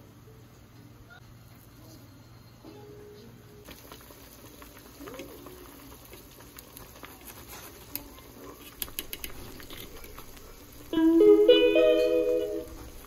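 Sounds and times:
ladle clicking against strainer: 0:07.9 - 0:10.4.

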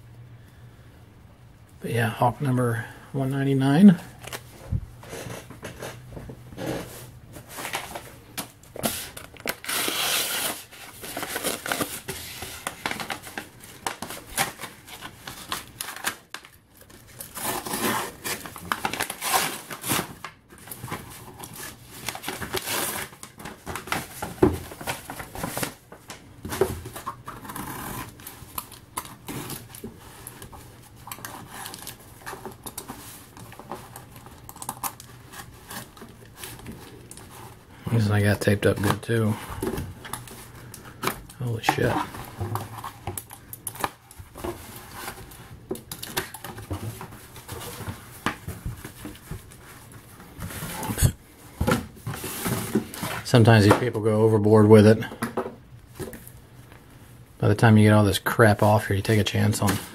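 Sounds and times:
cardboard crinkling: 0:03.8 - 0:54.0
packing tape tearing: 0:07.6 - 0:25.8, 0:26.5 - 0:37.6.

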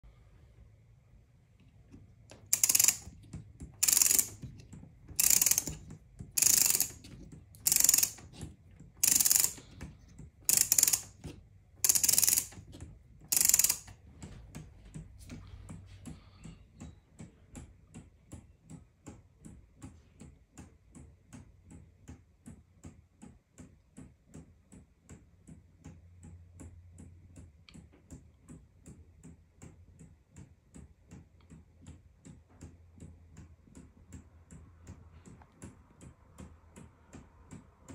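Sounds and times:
faint clock ticking: 0:01.9 - 0:23.7
ratchet clicking: 0:02.3 - 0:03.2, 0:03.8 - 0:04.6, 0:05.2 - 0:08.4, 0:09.0 - 0:09.7, 0:10.5 - 0:12.7, 0:13.3 - 0:13.9.

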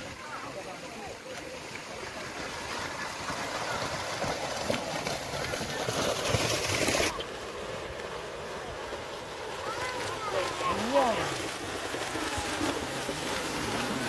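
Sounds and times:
hooves splashing through water: 0:00.0 - 0:14.0.

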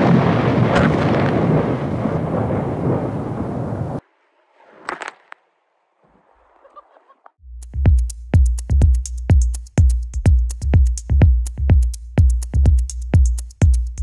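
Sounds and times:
thunder rumbling: 0:00.0 - 0:04.8.

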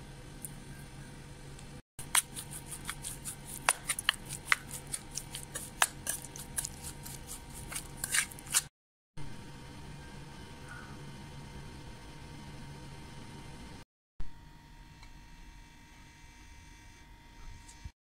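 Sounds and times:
hands mixing wet chicken: 0:02.0 - 0:08.7
faint steady hum: 0:09.2 - 0:17.9.

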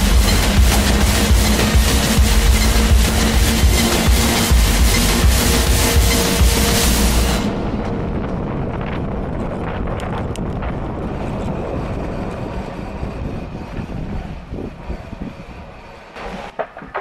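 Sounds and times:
wheels rumbling on paving: 0:00.0 - 0:17.0
wind buffeting microphone: 0:07.2 - 0:17.0.

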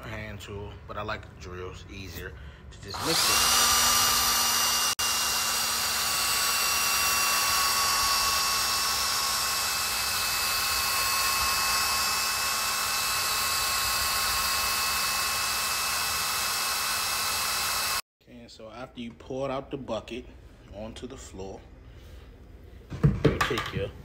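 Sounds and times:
electric drill mixing: 0:02.8 - 0:18.1.

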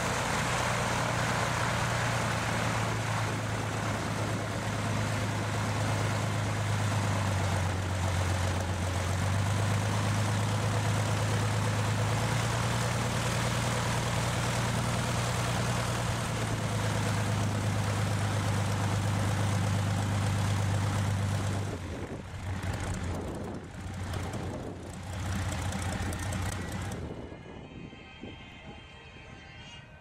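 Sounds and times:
piston engine idling: 0:14.4 - 0:27.1.

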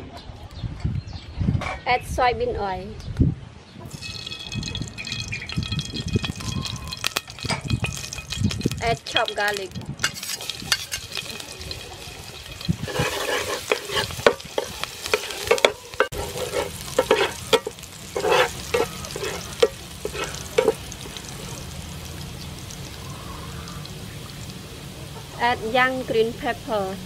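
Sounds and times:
garlic sizzling in oil: 0:03.9 - 0:27.0
metal blade scraping a pan: 0:10.0 - 0:20.8.

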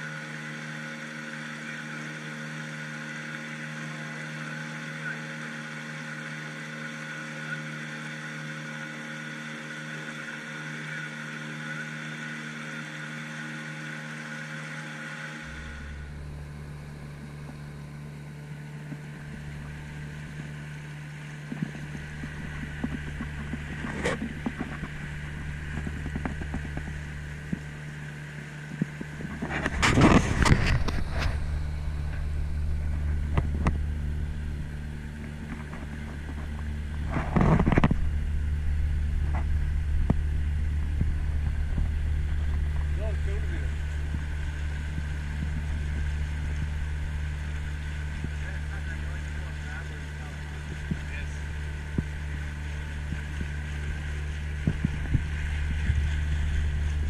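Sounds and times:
deeper engine rumble: 0:00.0 - 0:57.0
motorboat engine running: 0:00.0 - 0:57.0
water splashes and knocks: 0:18.7 - 0:27.9, 0:43.6 - 0:57.0.

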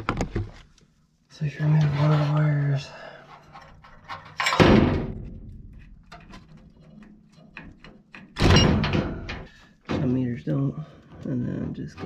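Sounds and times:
metal clicks and scrapes: 0:01.8 - 0:08.4
sharp metal clunk: 0:08.4 - 0:09.5.

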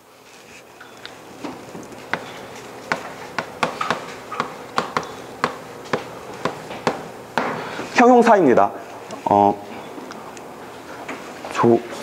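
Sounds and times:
chalk tapping and scraping: 0:01.9 - 0:07.0.

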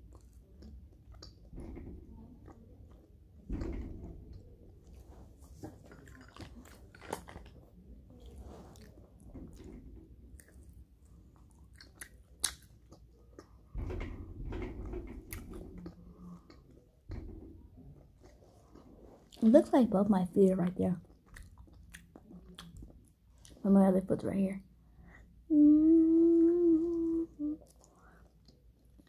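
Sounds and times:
biting and chewing: 0:04.4 - 0:13.7, 0:21.0 - 0:23.6.

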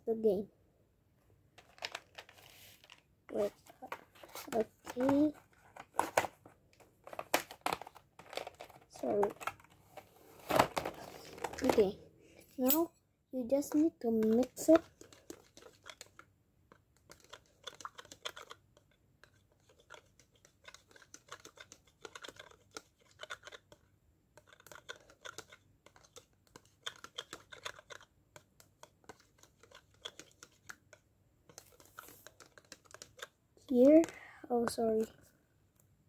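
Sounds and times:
spoon stirring in plastic cup: 0:14.1 - 0:34.2.

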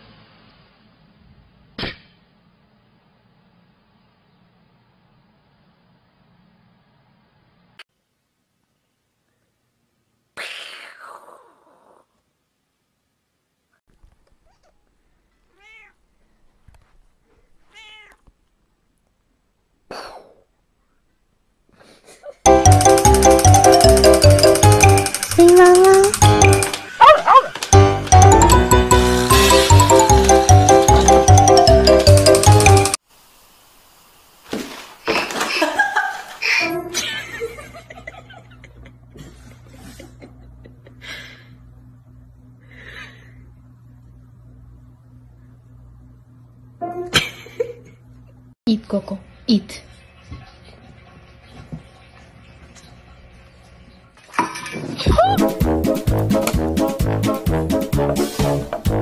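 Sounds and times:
cat meowing: 0:14.4 - 0:16.0, 0:17.6 - 0:18.3
stifled laughter: 0:35.5 - 0:41.4.

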